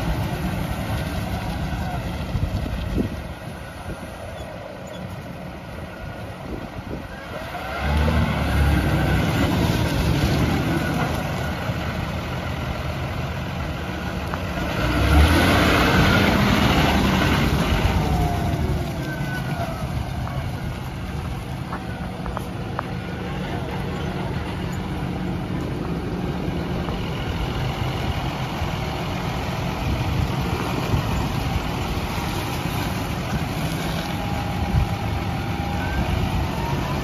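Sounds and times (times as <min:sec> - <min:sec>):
tractor diesel engine running: 0:00.0 - 0:37.0.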